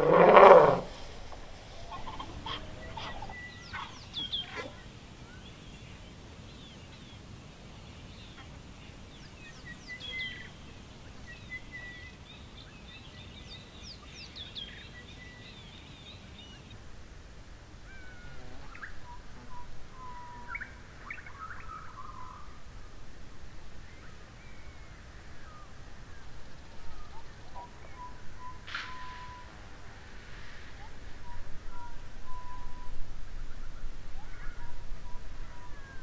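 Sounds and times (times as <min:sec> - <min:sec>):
whistled calls: 0:01.8 - 0:06.0, 0:09.2 - 0:16.7, 0:27.0 - 0:29.6, 0:31.2 - 0:33.0
bird-like chirps: 0:01.8 - 0:07.2.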